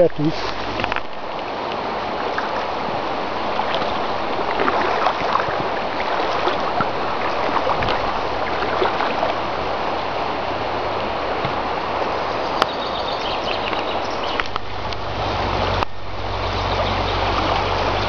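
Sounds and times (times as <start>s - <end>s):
river water rushing over stones: 0.0s - 18.0s.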